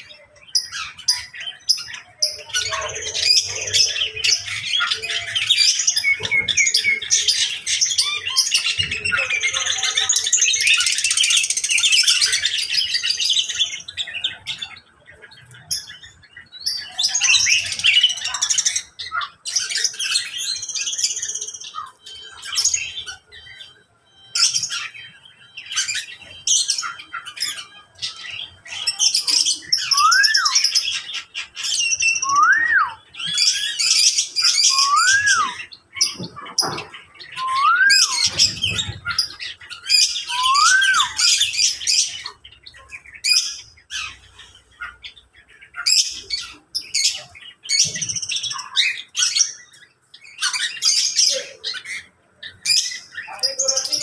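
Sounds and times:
birds chirping and squawking: 0.0s - 54.0s
bird whistling a note: 29.9s - 30.6s, 32.2s - 33.0s, 34.7s - 35.6s, 37.4s - 38.4s, 40.3s - 41.3s.

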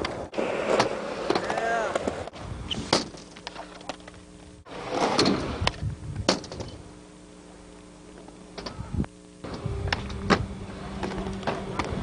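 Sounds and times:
skateboard wheels rolling on concrete: 0.0s - 6.8s, 9.4s - 12.0s
faint steady hum: 0.0s - 12.0s.

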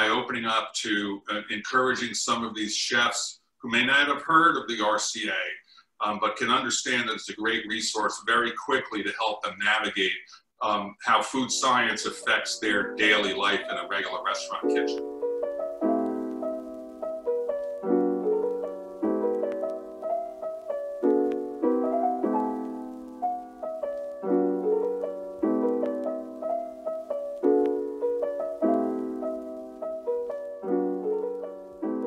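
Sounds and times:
piano playing slow chords: 12.8s - 32.0s.

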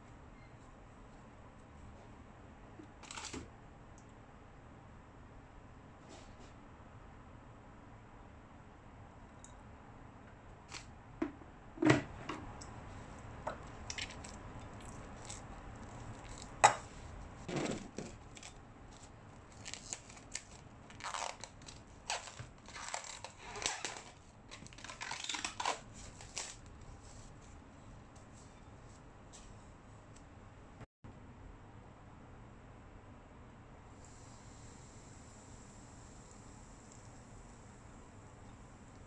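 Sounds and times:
cling film tearing and crinkling: 13.8s - 16.6s, 17.8s - 26.7s.

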